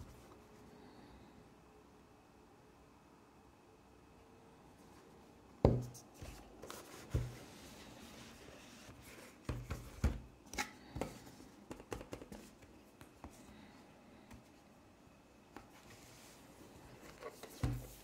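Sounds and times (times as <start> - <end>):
small taps and clicks: 11.7 - 13.4.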